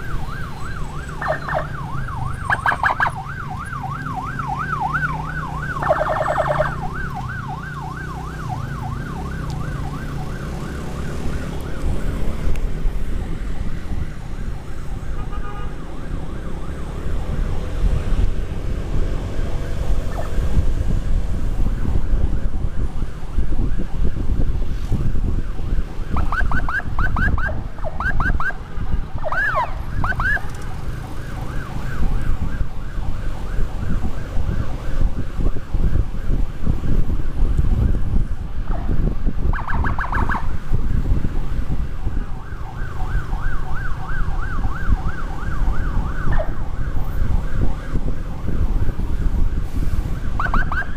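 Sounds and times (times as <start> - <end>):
electronic siren wailing: 0.0 - 12.3, 20.0 - 20.5, 25.5 - 36.4, 38.7 - 41.4, 42.0 - 50.9
wind on microphone: 0.0 - 15.2, 16.0 - 50.9
motorcycle riding rumble: 0.0 - 50.9.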